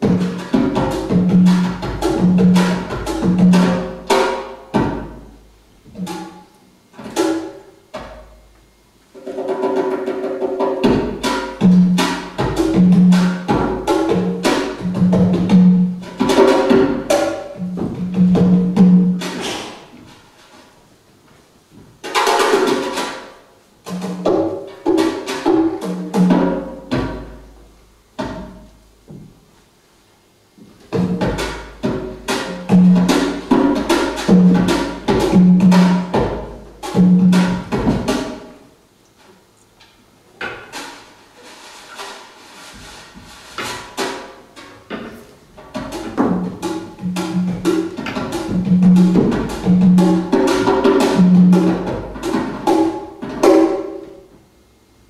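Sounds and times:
hand drum strikes: 0:09.2 - 0:19.8, 0:30.9 - 0:38.6, 0:43.6 - 0:54.1.

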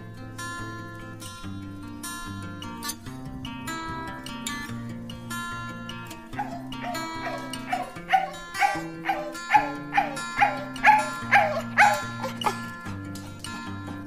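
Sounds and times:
background music: 0:00.0 - 0:14.0
dog woofing: 0:06.3 - 0:14.0.

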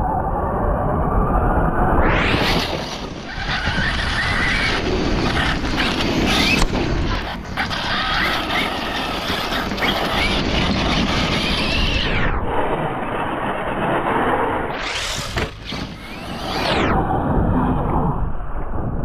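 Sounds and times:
electric motor whining: 0:02.2 - 0:12.6, 0:14.2 - 0:17.1
tyres on loose dirt: 0:02.3 - 0:12.0, 0:14.8 - 0:16.7.

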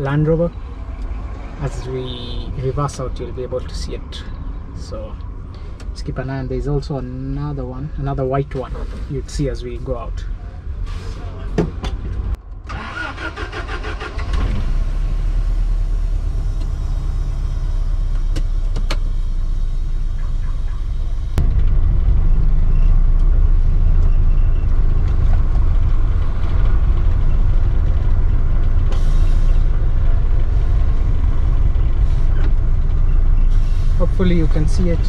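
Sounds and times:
engine cranking and running: 0:12.0 - 0:15.1.

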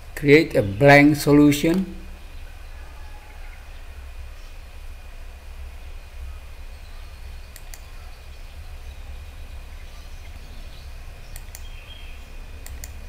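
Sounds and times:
steady low hum: 0:00.0 - 0:13.0
computer mouse clicking: 0:07.5 - 0:07.9, 0:11.3 - 0:11.7, 0:12.6 - 0:13.0.

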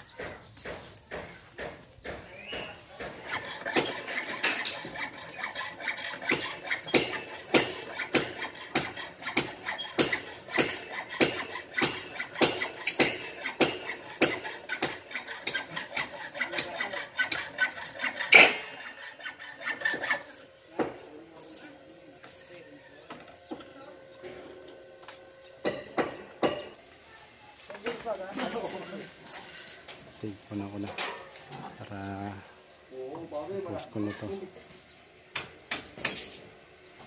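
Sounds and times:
metallic strokes on steel: 0:03.1 - 0:22.6.

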